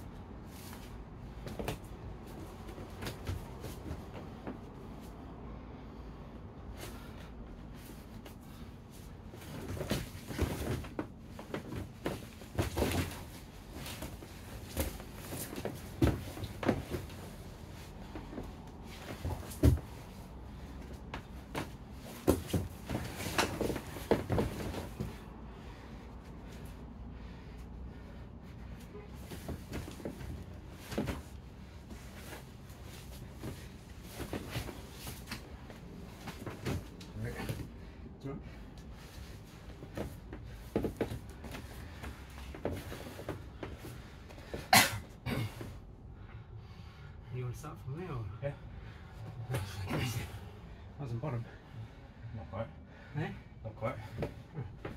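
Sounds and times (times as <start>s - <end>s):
bodies thumping on foam mats: 0.4s - 5.1s, 6.7s - 38.0s, 38.8s - 45.8s.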